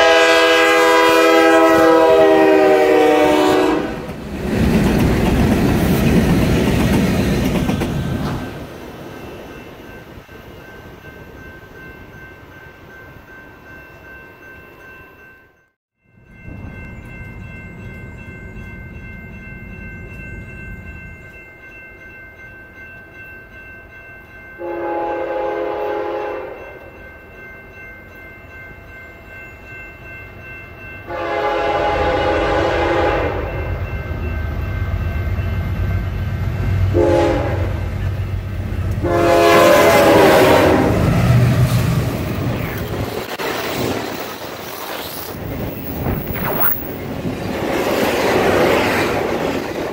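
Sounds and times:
locomotive air horn blasts: 0:00.0 - 0:04.1, 0:24.6 - 0:26.6, 0:31.1 - 0:33.6, 0:36.9 - 0:37.9, 0:39.0 - 0:41.0
train rumbling: 0:00.0 - 0:12.6, 0:16.2 - 0:21.8, 0:30.8 - 0:49.9.

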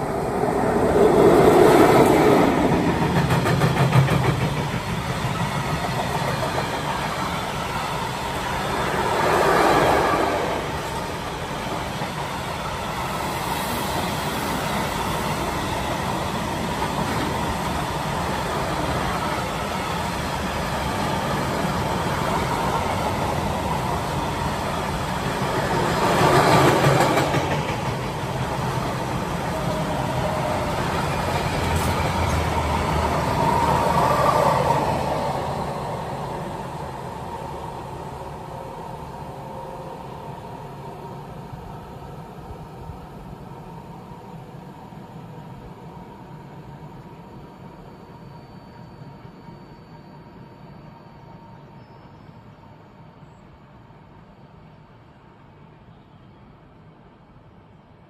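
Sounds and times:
train wheels rumbling on rails: 0:00.0 - 0:39.3.

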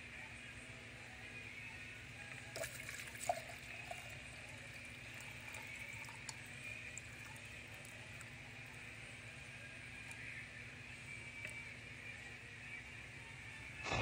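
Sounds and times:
water pouring and splashing: 0:02.5 - 0:04.1.

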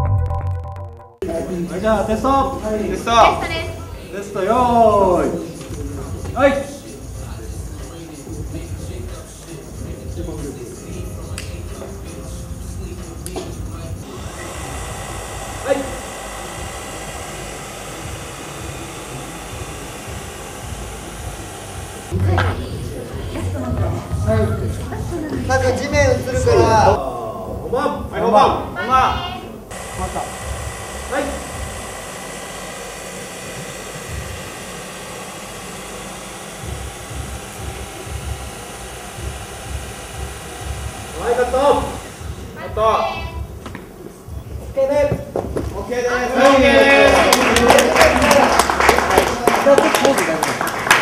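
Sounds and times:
faint hum: 0:04.9 - 0:25.1, 0:29.6 - 0:43.6.

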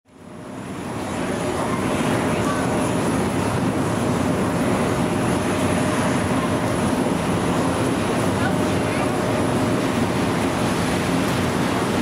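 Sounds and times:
jet engine rush: 0:00.1 - 0:12.0.

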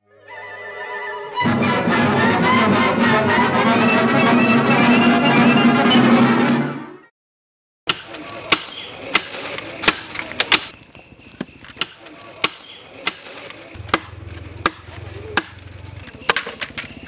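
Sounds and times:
machete chopping bamboo: 0:07.9 - 0:10.7, 0:11.4 - 0:17.0.

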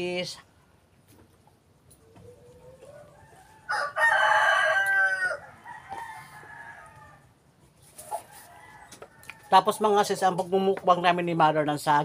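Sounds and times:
rooster crowing: 0:02.2 - 0:07.3, 0:08.2 - 0:09.6.

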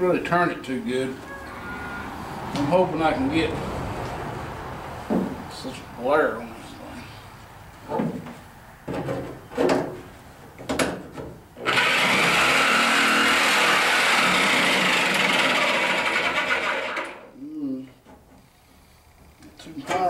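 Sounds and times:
electric metal shear cutting steel: 0:11.6 - 0:17.3.

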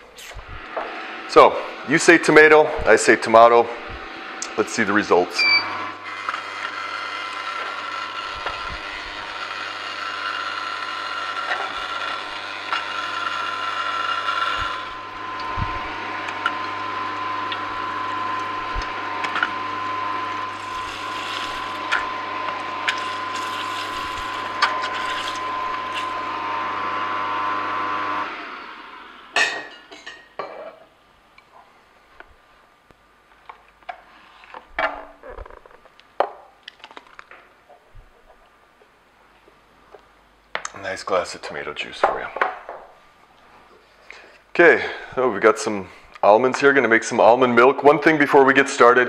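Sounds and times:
juicer motor hum: 0:00.5 - 0:29.4.

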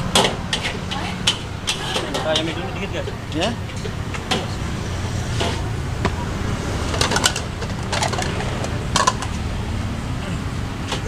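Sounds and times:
steady low rumble: 0:02.6 - 0:10.8.

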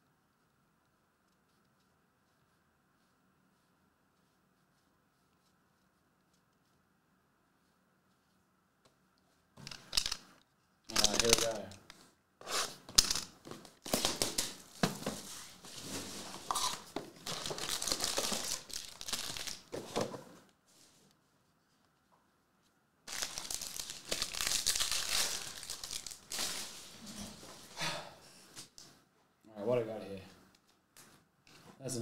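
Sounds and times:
foil packs crinkling: 0:16.4 - 0:19.7, 0:23.1 - 0:26.9
foil pack ripping: 0:16.6 - 0:19.7, 0:23.1 - 0:26.8.

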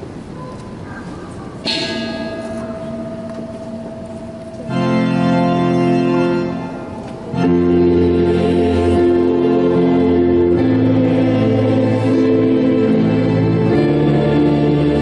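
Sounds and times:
organ playing sustained chords: 0:01.7 - 0:15.0
choir singing: 0:07.3 - 0:15.0.

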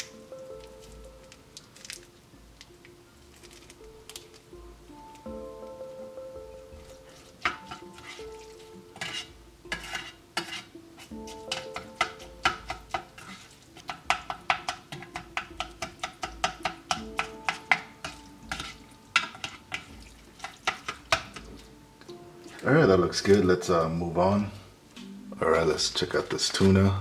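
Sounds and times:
spoon clicking and scraping metal tray: 0:09.0 - 0:21.5.

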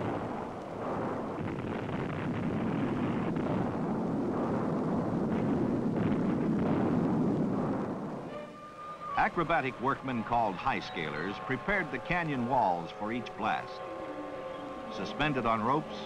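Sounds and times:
explosion rumble: 0:00.0 - 0:08.3.

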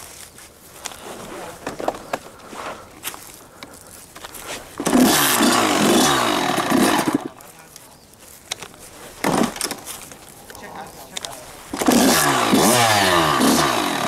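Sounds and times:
dirt bike engine revving: 0:04.7 - 0:07.4, 0:09.2 - 0:09.9, 0:10.6 - 0:14.0.

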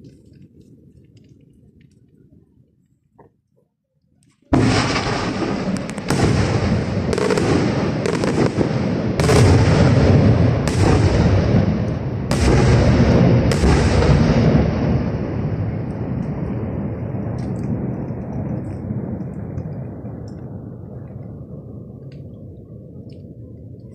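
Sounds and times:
firework shells bursting: 0:04.5 - 0:15.2.

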